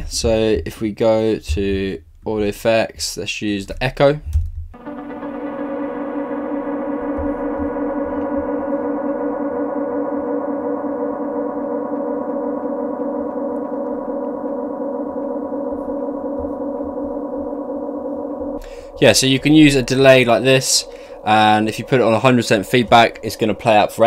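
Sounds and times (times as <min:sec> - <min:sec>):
sustained synthesizer drone: 0:04.8 - 0:24.0.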